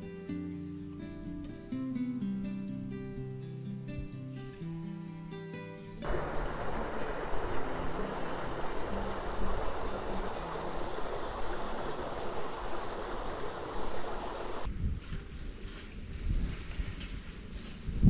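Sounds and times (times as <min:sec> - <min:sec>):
strummed acoustic guitar music: 0:00.0 - 0:10.0
water rushing down channel: 0:06.0 - 0:14.7.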